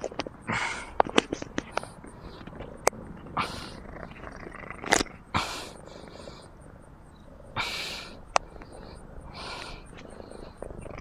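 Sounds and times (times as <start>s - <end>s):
cat purring: 1.7s - 11.0s.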